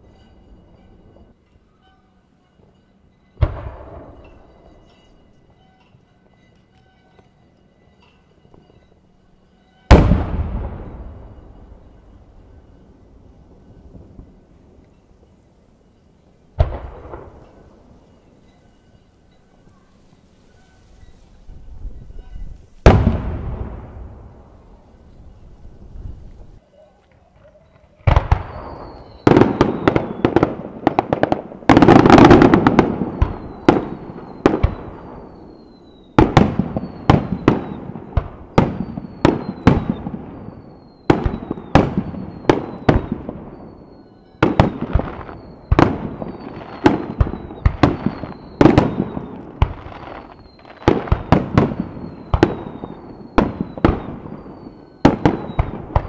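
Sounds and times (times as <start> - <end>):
firework shells booming: 3.4 - 4.7, 9.9 - 12.6, 16.6 - 18.1, 22.8 - 24.8, 28.0 - 56.0.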